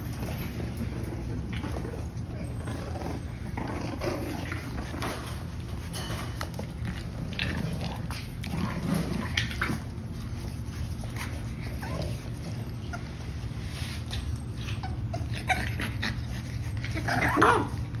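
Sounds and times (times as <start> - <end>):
puppies yipping and squeaking: 10.7 - 18.0.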